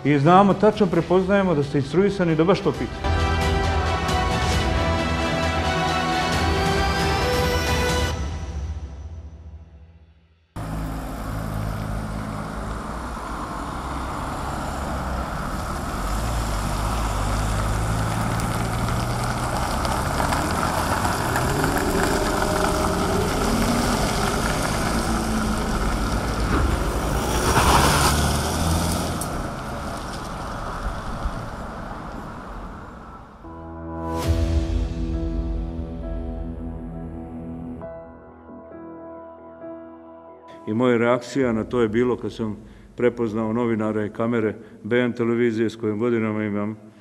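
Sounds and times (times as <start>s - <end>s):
car engines running: 10.6s - 33.5s.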